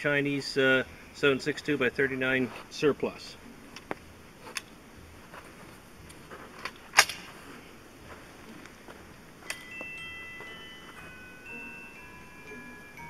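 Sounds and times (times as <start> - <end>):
faint chime-like tones: 9.5 - 13.0.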